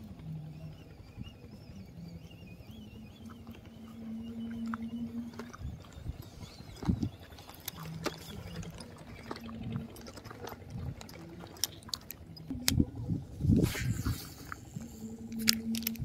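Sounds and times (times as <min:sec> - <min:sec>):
fishing reel clicks: 0:14.4 - 0:16.0.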